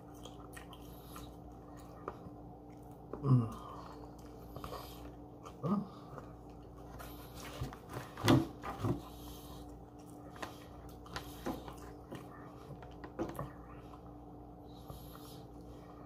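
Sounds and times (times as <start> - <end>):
faint steady hum: 0.0 - 16.0
person chewing food: 0.0 - 16.0
person humming low grunts: 3.2 - 3.8.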